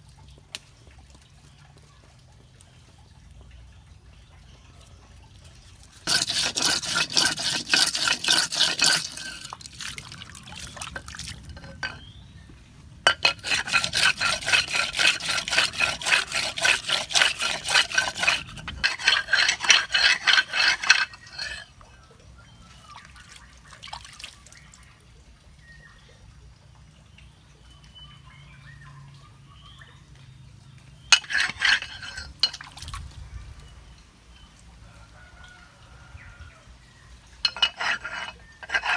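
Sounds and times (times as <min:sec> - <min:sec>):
knife grinding on wet stone: 0:05.4 - 0:12.4, 0:13.0 - 0:22.0, 0:31.0 - 0:33.0, 0:37.3 - 0:38.9.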